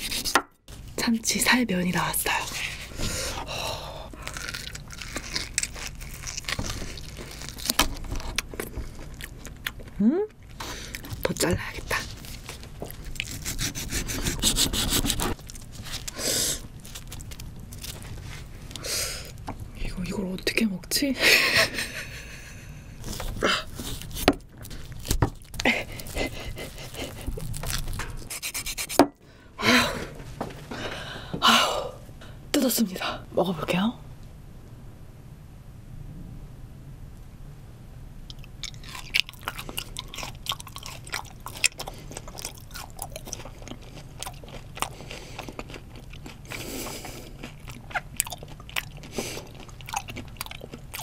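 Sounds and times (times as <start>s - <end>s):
wet crackling of peeling fish flesh: 4.0s - 13.9s, 15.1s - 19.6s, 23.2s - 28.3s.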